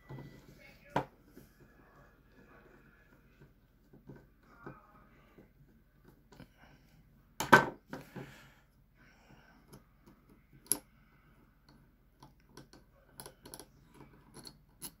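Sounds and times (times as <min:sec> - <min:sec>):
metal clicks and taps of revolver: 0:10.6 - 0:10.8.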